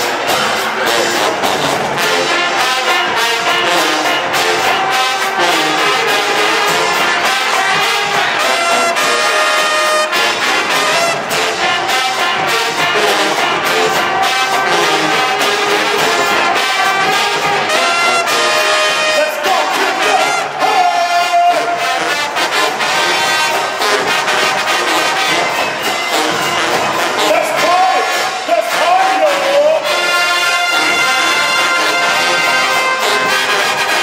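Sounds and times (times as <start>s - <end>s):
steady drum beat: 0.0s - 29.2s, 29.8s - 34.0s
brass section playing: 0.0s - 34.0s.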